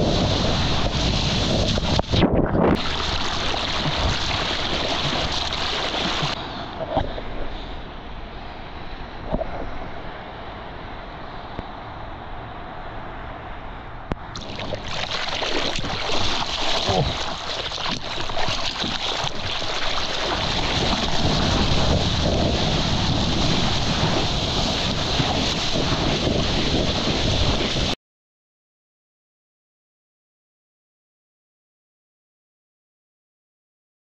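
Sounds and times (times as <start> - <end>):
water rushing and splashing: 0.0 - 7.3, 14.2 - 28.0
wind noise on microphone: 0.0 - 7.6, 9.2 - 10.8, 14.0 - 28.0.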